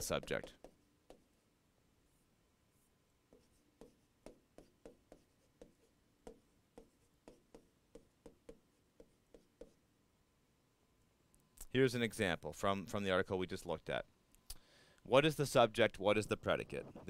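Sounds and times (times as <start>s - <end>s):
stylus tapping on touchscreen: 0.0s - 1.3s, 3.3s - 9.8s.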